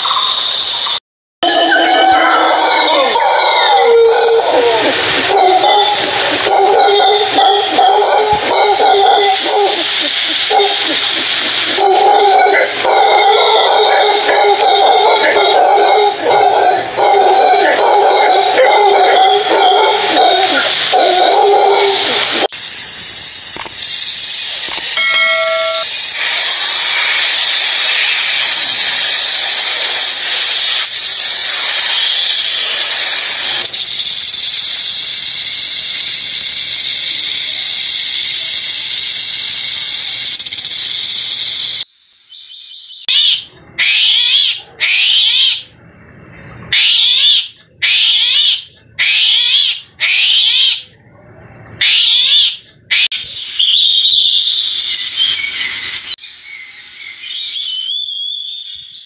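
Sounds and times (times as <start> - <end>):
high-pitched animal calls: 0.0 - 22.6, 42.8 - 45.8, 46.5 - 51.0, 51.7 - 56.2
snake hissing: 4.2 - 16.3, 18.3 - 25.0, 25.9 - 41.9.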